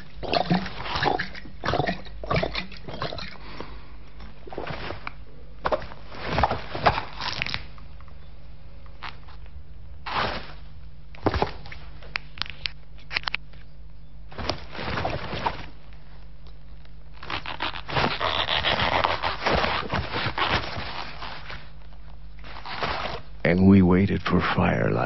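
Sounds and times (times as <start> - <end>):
low steady hum: 0.0 - 25.0
crackling rustling noise: 2.9 - 8.2, 8.9 - 13.7, 14.3 - 23.4.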